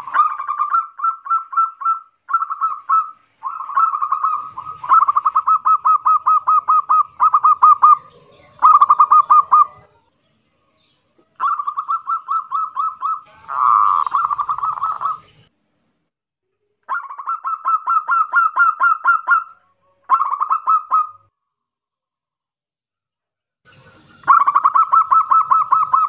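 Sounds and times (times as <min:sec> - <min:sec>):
dove cooing: 0:00.0 - 0:09.9, 0:11.4 - 0:15.4, 0:16.9 - 0:21.3, 0:24.2 - 0:26.0.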